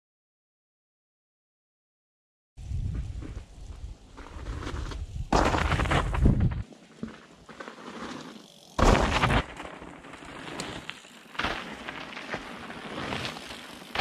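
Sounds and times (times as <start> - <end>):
wind on microphone: 2.6 - 6.6
bike tyres crunching on frozen dirt: 2.6 - 14.0
bike rattling and clicking: 4.2 - 14.0.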